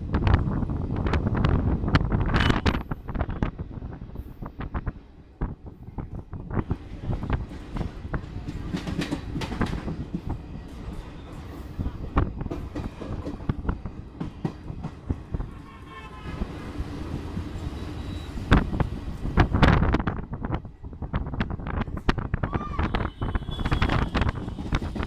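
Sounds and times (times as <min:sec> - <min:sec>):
train rumble: 0:00.0 - 0:25.0
train wheels clattering over rail joints: 0:06.7 - 0:15.6, 0:23.6 - 0:25.0.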